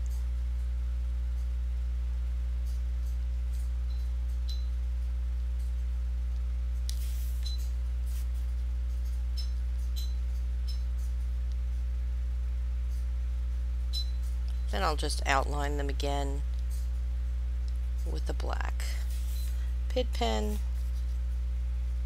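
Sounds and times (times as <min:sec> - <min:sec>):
low electrical hum: 0:00.0 - 0:22.0
faint clicks and clinks: 0:08.9 - 0:12.0.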